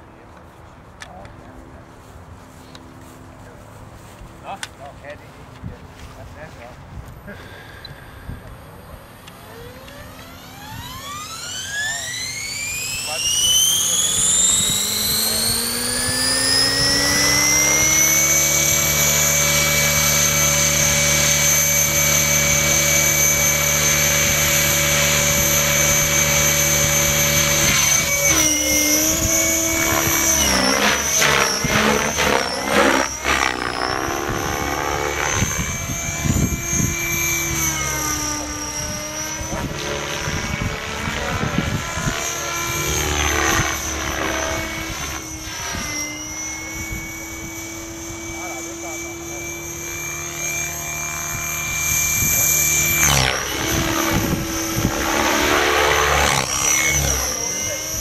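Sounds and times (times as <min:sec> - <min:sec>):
rc helicopter motor whine: 0:04.4 - 0:58.0.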